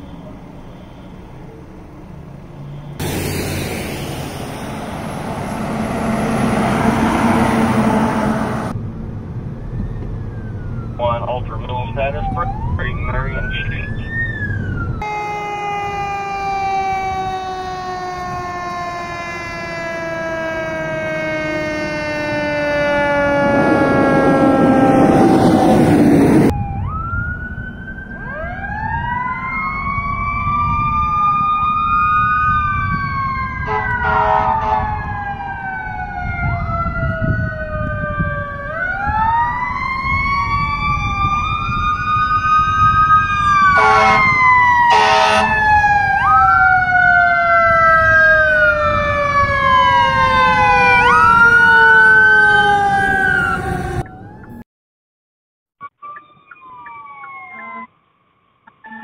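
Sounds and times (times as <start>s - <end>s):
truck passing close: 0.0s - 54.6s
fire engine siren wailing: 3.0s - 54.6s, 55.8s - 57.9s, 58.8s - 59.0s
air horn blasts: 33.6s - 34.9s, 43.8s - 45.6s.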